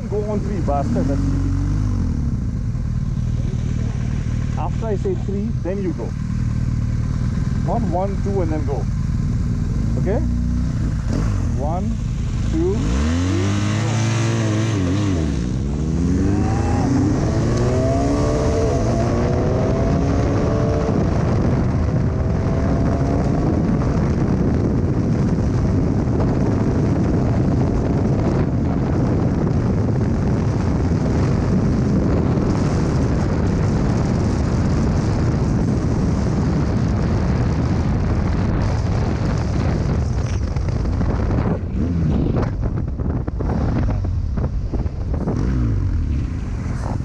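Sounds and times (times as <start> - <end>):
motorcycle engine accelerating: 0.0 - 47.0
wind buffeting on microphone: 0.0 - 47.0.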